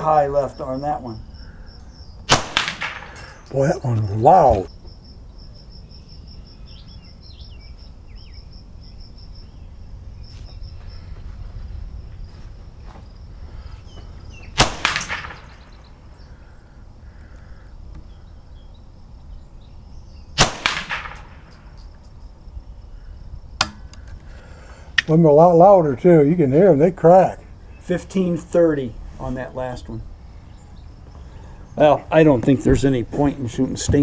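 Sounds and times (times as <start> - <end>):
rifle shots: 2.3 - 3.4, 14.5 - 15.9, 20.4 - 21.7.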